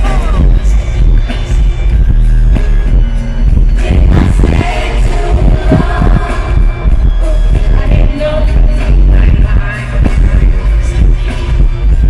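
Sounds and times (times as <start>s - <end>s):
live pop concert music: 0.0s - 12.0s
person singing: 3.8s - 11.5s.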